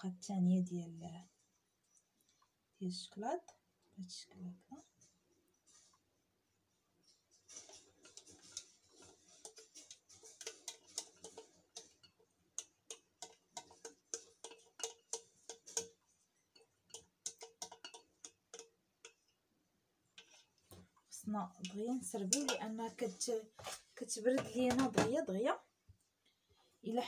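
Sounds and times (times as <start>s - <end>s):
whisk scraping a metal saucepan: 7.0s - 19.4s, 20.0s - 25.1s.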